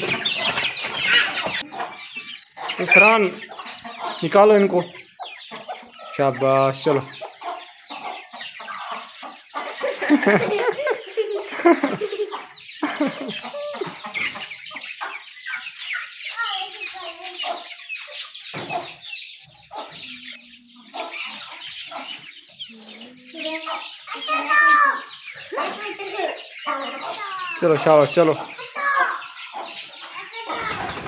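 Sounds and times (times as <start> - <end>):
chicks peeping: 0.0 - 31.0
hens clucking: 0.0 - 31.0.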